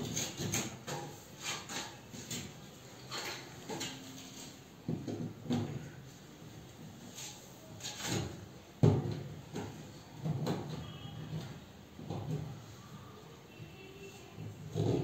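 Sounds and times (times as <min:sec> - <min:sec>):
plastic ceiling panels knocking: 0:00.0 - 0:04.2, 0:04.8 - 0:06.0
plastic panels scraping: 0:00.0 - 0:06.0.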